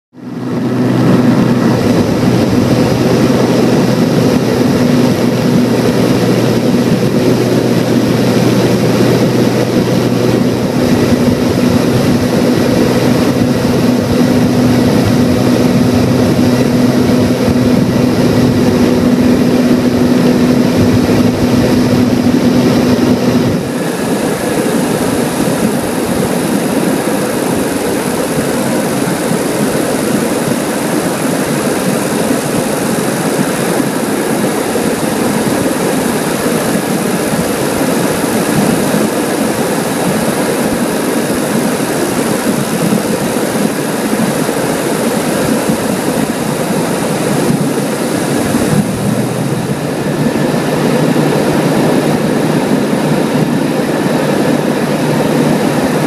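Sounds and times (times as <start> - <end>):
aircraft engine and propeller drone: 0.1 - 56.0.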